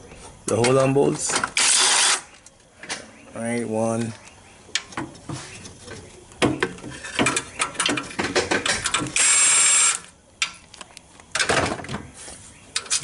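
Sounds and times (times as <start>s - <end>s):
power wrench motor spinning: 1.6s - 2.3s.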